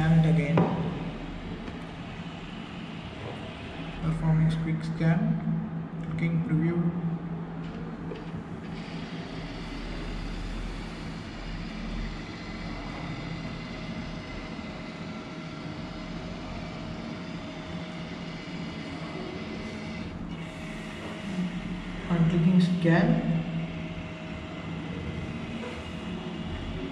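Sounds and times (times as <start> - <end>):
scanner motor whirring: 8.2 - 26.9.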